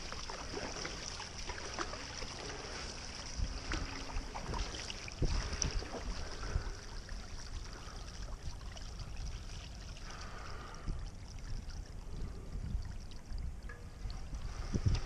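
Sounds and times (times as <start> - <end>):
paddle splashing water: 0.0 - 12.1
wind rumble on microphone: 3.1 - 15.0.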